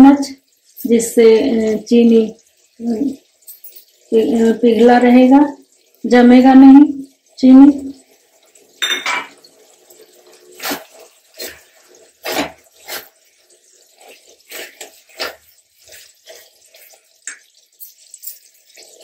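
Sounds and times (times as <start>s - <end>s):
spatula scraping sticky chutney: 10.5s - 19.0s.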